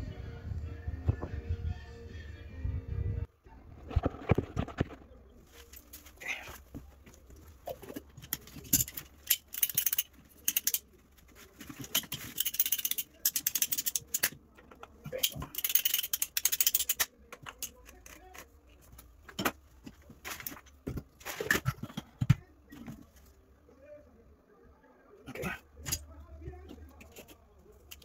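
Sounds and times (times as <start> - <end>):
plastic pipe rattling and scraping: 3.7 - 23.2.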